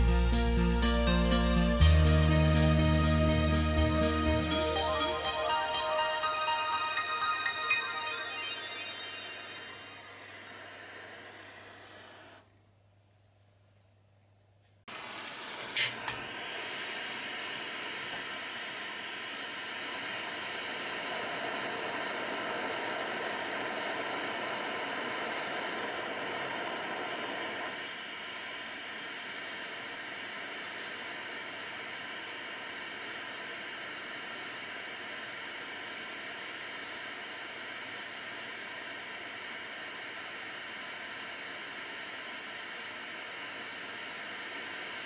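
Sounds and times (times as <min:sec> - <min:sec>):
soldering flame hissing: 0:09.2 - 0:12.4, 0:14.9 - 0:45.0.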